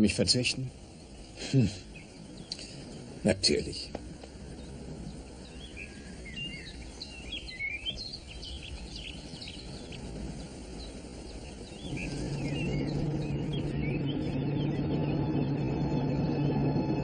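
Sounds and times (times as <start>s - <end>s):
outdoor background hiss: 0.0s - 17.0s
songbirds chirping: 0.0s - 17.0s
low sustained music note: 11.7s - 17.0s.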